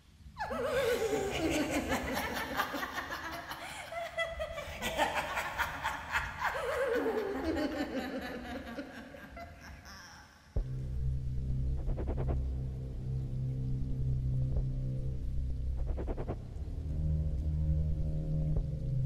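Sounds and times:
person laughing: 0:00.4 - 0:10.4.

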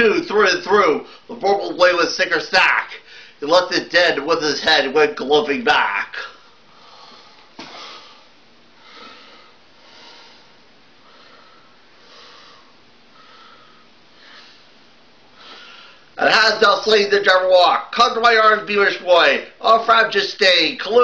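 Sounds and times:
person breathing heavily: 0:03.0 - 0:03.4, 0:06.4 - 0:16.1.

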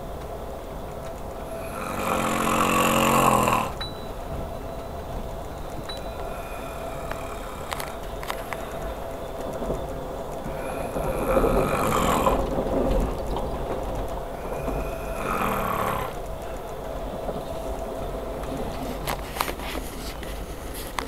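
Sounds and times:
train rumbling: 0:00.0 - 0:21.0
man snoring loudly: 0:01.4 - 0:03.8, 0:06.2 - 0:08.0, 0:10.5 - 0:12.6, 0:14.4 - 0:16.2
sharp clicks: 0:05.2 - 0:21.0.

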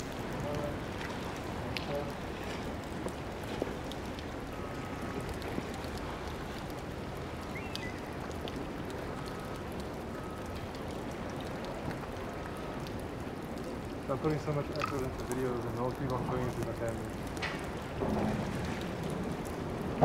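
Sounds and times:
moving water: 0:00.0 - 0:20.0
wind: 0:00.0 - 0:20.0
faint clicks: 0:14.7 - 0:19.6.

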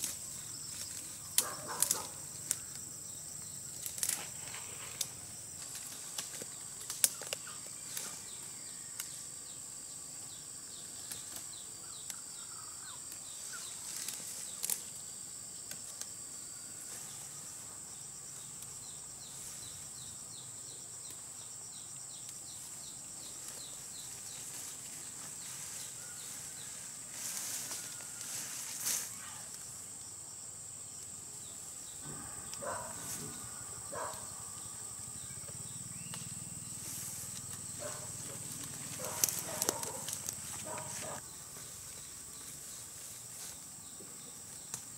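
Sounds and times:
plant stems snapping and rustling: 0:00.0 - 0:02.8, 0:03.7 - 0:08.1, 0:13.9 - 0:14.9, 0:38.4 - 0:41.2
insects buzzing: 0:00.0 - 0:44.9.

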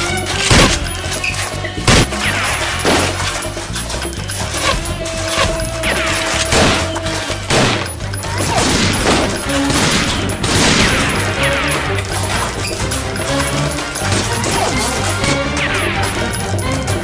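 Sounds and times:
background music with bass beat: 0:00.0 - 0:17.0
foam-dart blaster shots: 0:07.5 - 0:11.9.

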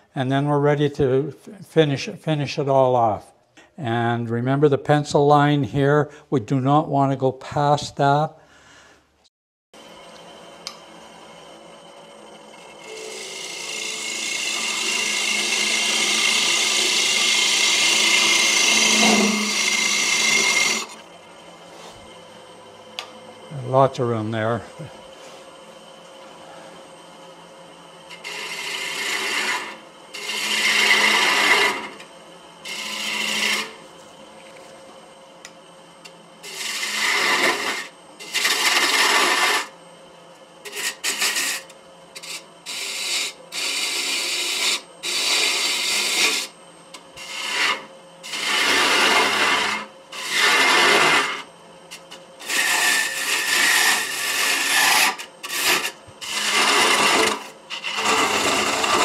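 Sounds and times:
turning tool cutting wood: 0:09.8 - 0:24.6, 0:26.8 - 0:39.8, 0:40.6 - 0:59.0
lathe humming: 0:09.8 - 0:59.0.

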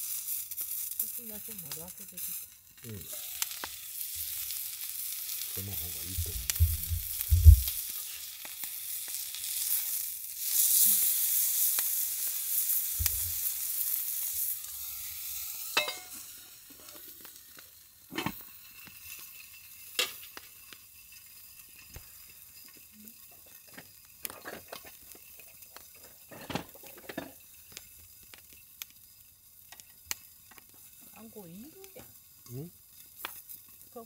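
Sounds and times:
meat sizzling on griddle: 0:00.0 - 0:34.0
steel lid set on plate: 0:15.8 - 0:16.2.

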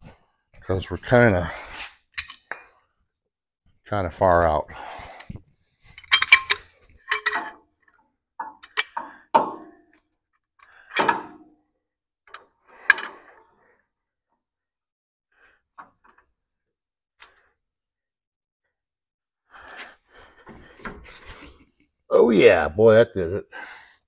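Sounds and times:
metal clamp clanking: 0:05.9 - 0:07.6.

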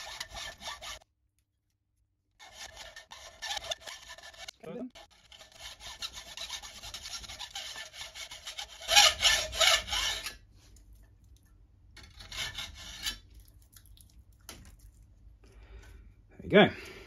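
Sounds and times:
hacksaw cutting metal: 0:00.0 - 0:01.0, 0:02.4 - 0:10.4.

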